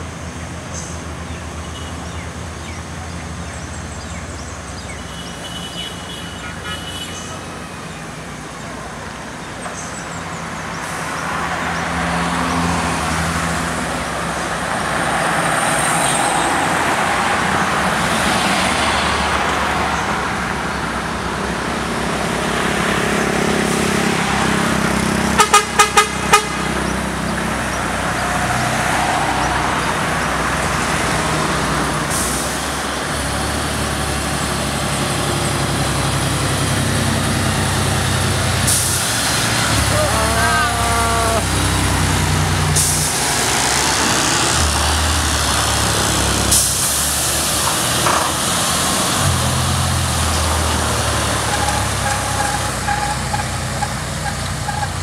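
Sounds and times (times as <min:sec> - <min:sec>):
cars passing: 0:00.0 - 0:55.0
vehicle horn toots: 0:05.1 - 0:07.4, 0:25.4 - 0:26.6, 0:39.9 - 0:41.5
diesel truck climbing: 0:07.2 - 0:55.0.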